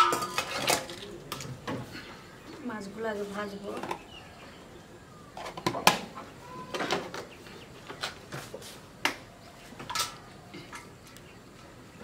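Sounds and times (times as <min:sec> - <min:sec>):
kitchen containers and utensils clicking: 0:00.0 - 0:01.5.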